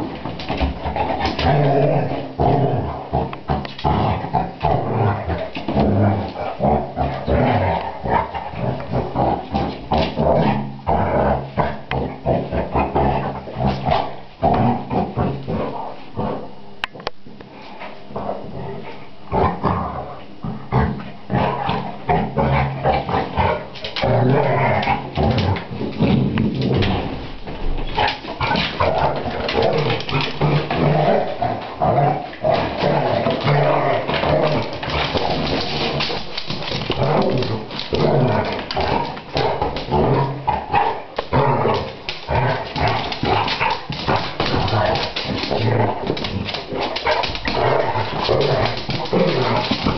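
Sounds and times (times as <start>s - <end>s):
dogs growling: 0.0s - 17.0s, 17.8s - 49.9s.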